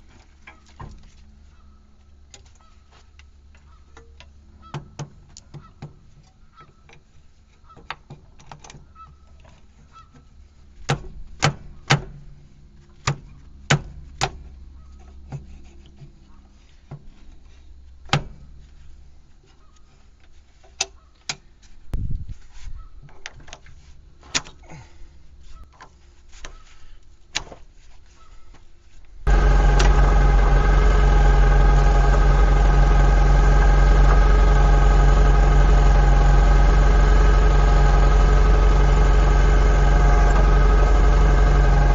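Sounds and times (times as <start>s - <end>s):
tractor diesel engine idling: 29.3s - 41.9s.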